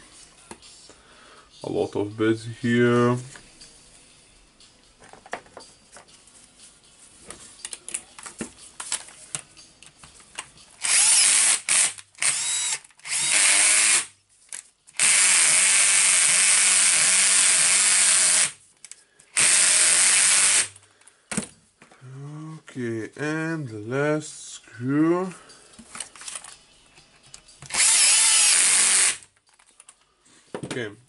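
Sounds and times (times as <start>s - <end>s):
cordless drill driving screws: 10.8s - 14.1s, 15.0s - 18.6s, 19.3s - 20.8s, 27.7s - 29.2s
clicks of parts being handled: 25.8s - 26.6s.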